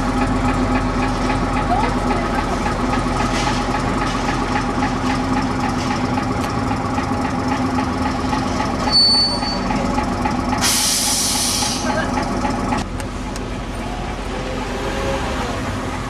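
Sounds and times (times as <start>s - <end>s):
bus diesel engine running: 0.0s - 16.0s
short high beep: 8.9s - 9.6s.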